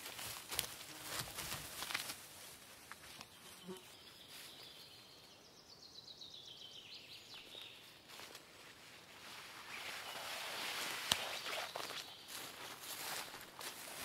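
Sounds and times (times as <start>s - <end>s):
songbird singing: 2.8s - 8.4s, 9.6s - 13.9s.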